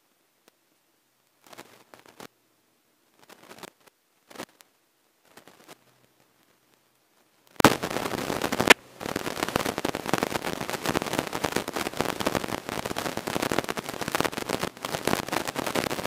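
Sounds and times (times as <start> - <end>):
sharp cracks: 5.3 - 6.5, 7.5 - 16.0
wind crackling on microphone: 7.6 - 16.0.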